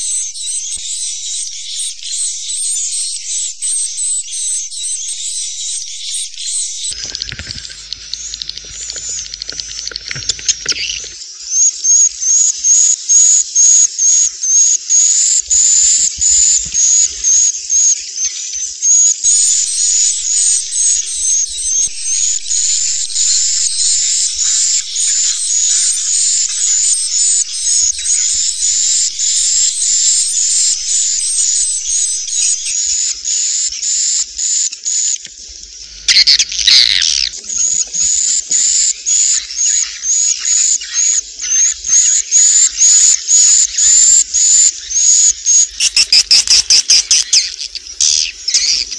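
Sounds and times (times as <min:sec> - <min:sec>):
harsh bird chirring: 0:00.0 - 0:48.9
swiftlets chirping: 0:06.2 - 0:11.2, 0:45.5 - 0:48.9.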